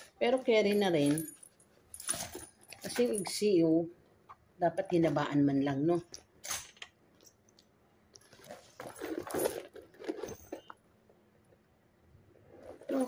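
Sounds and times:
bag wrapping rustling: 0:08.2 - 0:10.8, 0:12.6 - 0:13.0.

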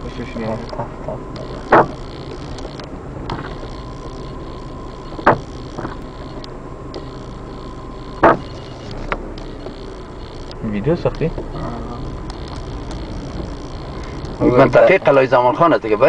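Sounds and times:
faint steady high tone: 0:00.0 - 0:16.0
vehicle cabin noise: 0:00.0 - 0:16.0
short sharp knocks: 0:08.2 - 0:08.5.

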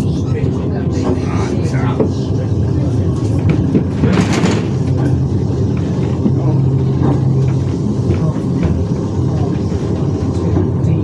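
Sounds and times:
tram motor hum: 0:00.0 - 0:11.0
tram wheels rumbling on rail: 0:00.0 - 0:11.0.

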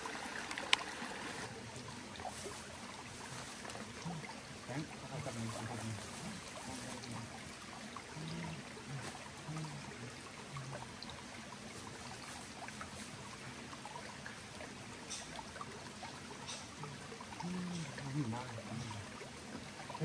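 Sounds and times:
stream running over rocks: 0:00.0 - 0:20.0
faint low murmurs: 0:01.6 - 0:12.3, 0:16.4 - 0:20.0.

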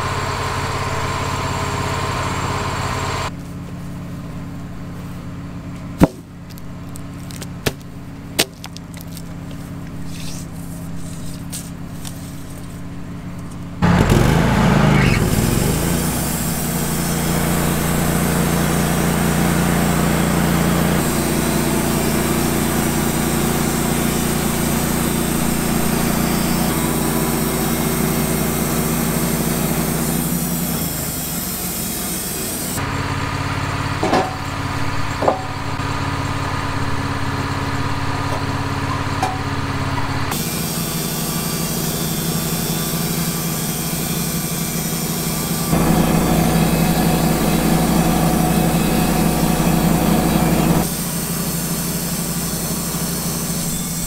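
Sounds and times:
bandsaw mill cutting wood: 0:13.8 - 0:33.6, 0:39.7 - 0:54.0.

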